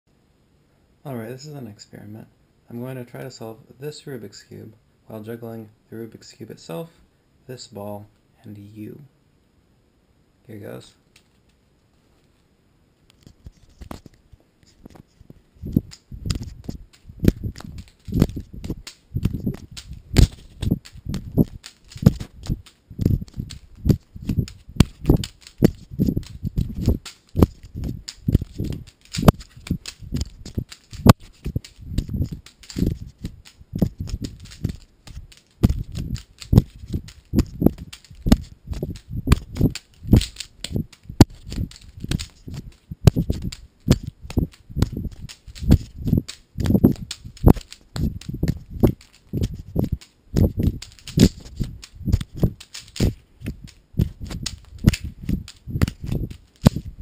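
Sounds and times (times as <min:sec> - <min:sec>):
handling thumps: 0:15.0 - 0:57.0
objects knocking into palms: 0:15.6 - 0:57.0
plastic cube clicks: 0:15.7 - 0:56.9.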